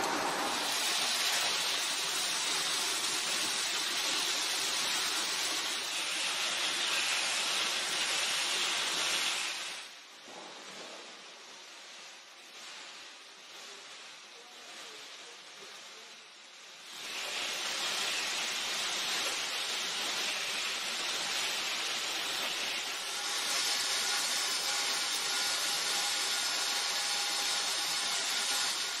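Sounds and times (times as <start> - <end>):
machinery hissing: 0.0 - 10.0, 16.8 - 29.0.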